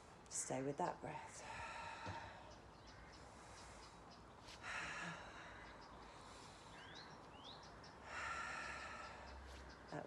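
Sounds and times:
person breathing: 0:01.4 - 0:07.1, 0:08.0 - 0:09.7.

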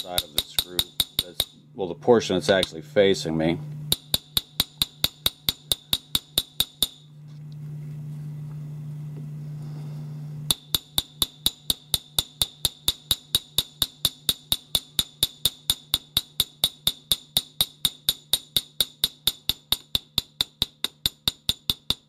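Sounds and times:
hammer tapping on metal: 0:00.0 - 0:01.6, 0:03.9 - 0:07.0, 0:10.5 - 0:22.0.

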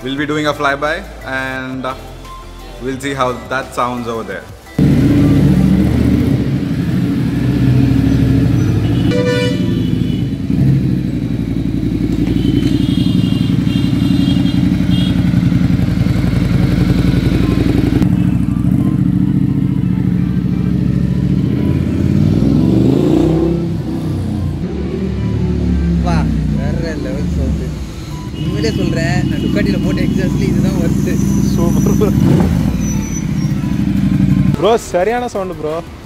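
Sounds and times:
motorcycle engine running deep: 0:04.8 - 0:27.7, 0:28.6 - 0:34.6
horn tooting: 0:07.6 - 0:26.4, 0:27.5 - 0:34.6.

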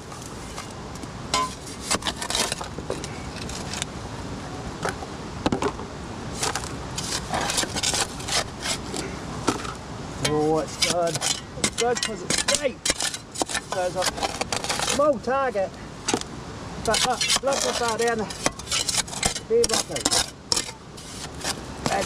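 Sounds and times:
steady background noise: 0:00.0 - 0:22.0
shovel scraping soil and gravel: 0:01.4 - 0:03.9, 0:06.3 - 0:15.2, 0:16.8 - 0:22.0.

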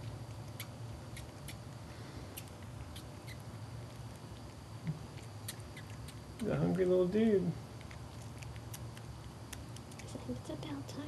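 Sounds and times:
squirrel sucking clicks: 0:00.0 - 0:01.7, 0:02.3 - 0:06.6, 0:07.7 - 0:10.2
low steady hum: 0:00.0 - 0:11.0.

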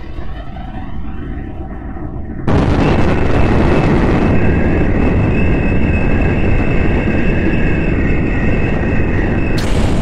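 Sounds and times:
spaceship engine rushing noise: 0:09.6 - 0:10.0.

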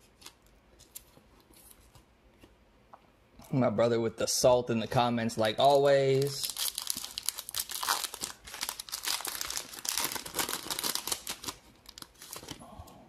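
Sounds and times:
foil wrapper tearing and crinkling: 0:06.1 - 0:12.6.

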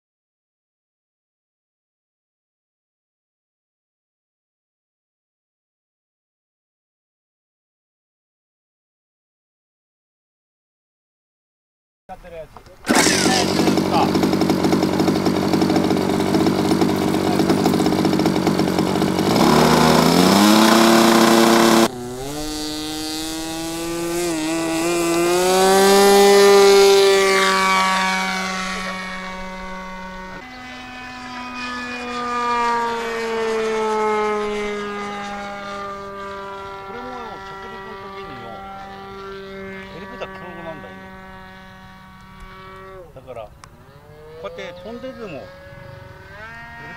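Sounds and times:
model airplane engine: 0:12.2 - 0:46.9.

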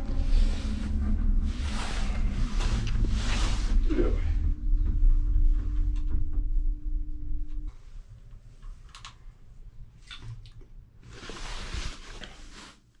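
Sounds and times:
cable car rumbling: 0:00.0 - 0:10.0
steady hum: 0:00.0 - 0:10.0.

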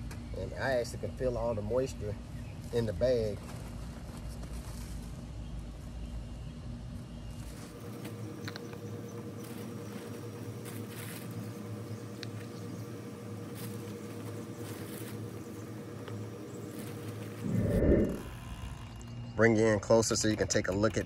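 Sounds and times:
low background hum: 0:00.0 - 0:21.0
bark mulch rustling and clattering: 0:09.4 - 0:11.6, 0:13.4 - 0:17.2.

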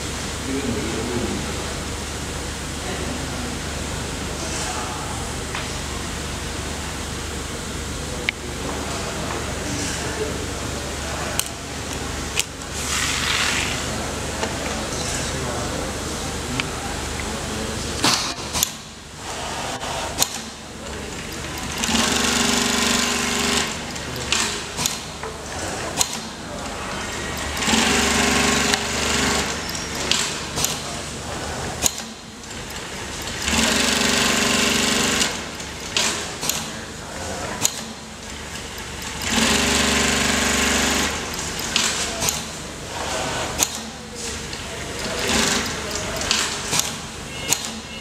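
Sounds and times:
sharp mechanical clicks: 0:20.2 - 0:20.6, 0:21.2 - 0:25.2, 0:26.0 - 0:26.4, 0:27.3 - 0:30.8, 0:31.8 - 0:36.8, 0:37.6 - 0:42.6, 0:43.6 - 0:43.9, 0:44.5 - 0:47.9
sewing machine stitching: 0:21.2 - 0:26.2, 0:26.9 - 0:30.8, 0:32.0 - 0:36.7, 0:37.6 - 0:42.5, 0:45.0 - 0:47.9.

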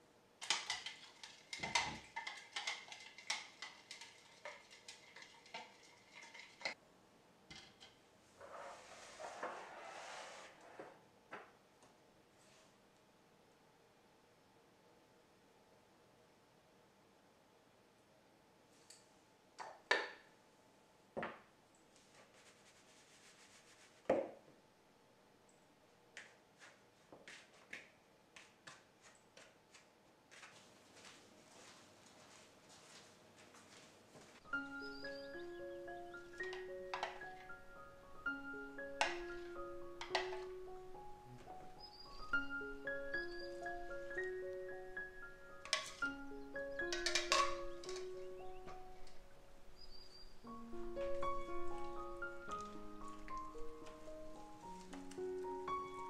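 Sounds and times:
metal spoon clinking in jug: 0:00.4 - 0:06.8, 0:46.8 - 0:48.1
hands rubbing dough: 0:22.0 - 0:24.1, 0:26.2 - 0:34.4.

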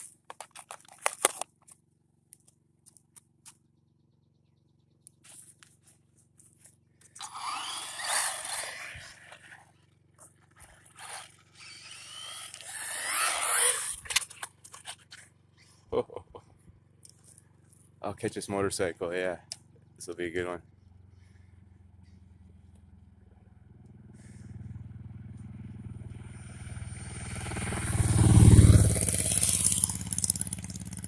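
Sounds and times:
tyre noise on asphalt: 0:00.0 - 0:03.7, 0:05.2 - 0:15.9, 0:22.9 - 0:31.0
electric motor whining: 0:07.2 - 0:09.7, 0:10.6 - 0:14.9.

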